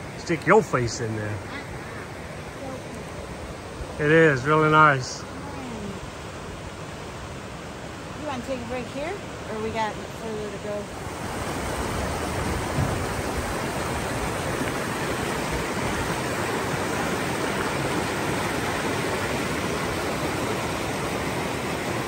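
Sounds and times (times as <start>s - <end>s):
river water rushing: 0.0s - 22.0s
low thump: 12.7s - 13.1s.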